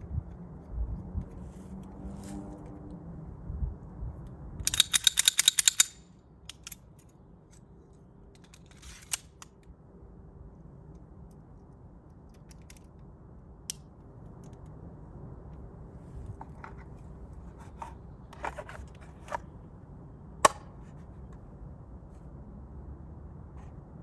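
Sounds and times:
pistol clicks: 4.6s - 6.8s.

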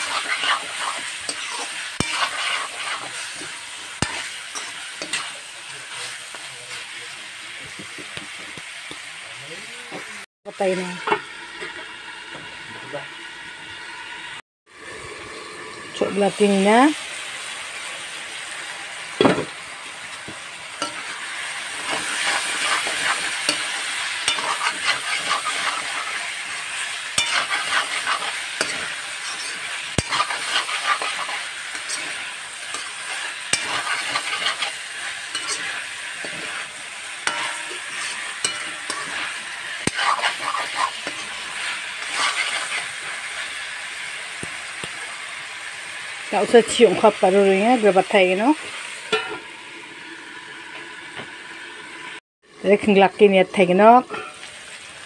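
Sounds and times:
metal spoon scraping pan: 0.0s - 6.4s, 20.8s - 43.6s, 54.0s - 54.5s
chicken sizzling in a wok: 0.0s - 55.0s.

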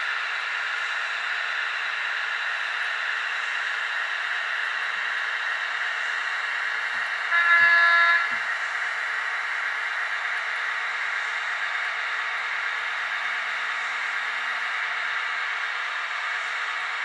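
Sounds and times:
model locomotive horn blast: 7.2s - 8.5s.

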